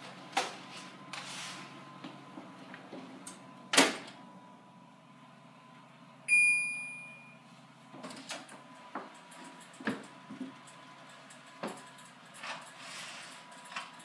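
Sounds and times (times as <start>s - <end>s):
electronic beep: 6.3s - 7.4s.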